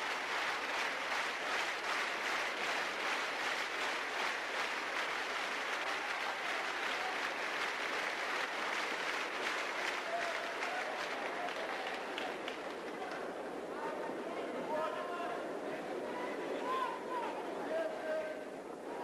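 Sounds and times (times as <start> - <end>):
crowd applauding: 0.0 - 13.4.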